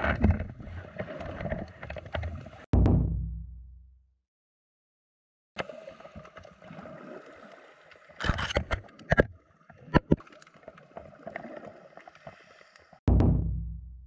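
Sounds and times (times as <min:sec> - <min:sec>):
sea water sloshing: 0:05.6 - 0:13.0.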